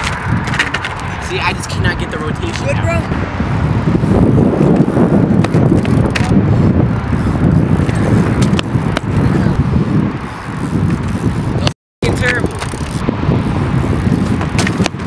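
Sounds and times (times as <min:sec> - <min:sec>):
bike clicks and knocks: 0:00.0 - 0:01.2, 0:02.4 - 0:02.8, 0:04.6 - 0:13.0, 0:13.7 - 0:15.0
bike tyres rolling on asphalt: 0:00.0 - 0:15.0.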